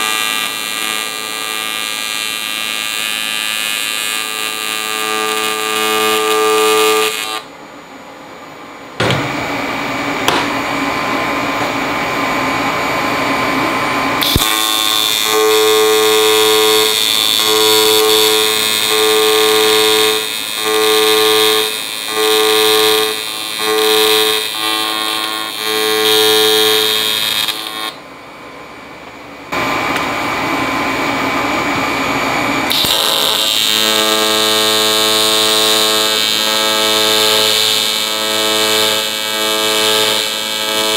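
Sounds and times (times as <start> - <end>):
welding arc buzzing with hiss: 0.0 - 7.5, 14.1 - 28.0, 32.5 - 40.9.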